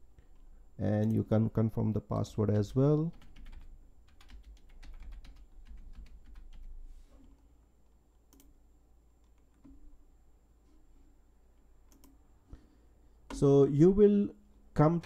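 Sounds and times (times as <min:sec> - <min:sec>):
typing on a keyboard: 0:03.1 - 0:06.8
clicks: 0:11.8 - 0:12.2.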